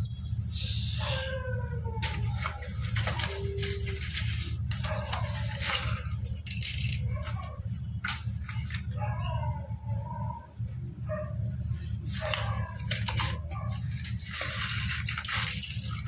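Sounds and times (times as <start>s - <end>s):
slate pencils clattering: 2.0s - 9.0s, 12.1s - 16.0s.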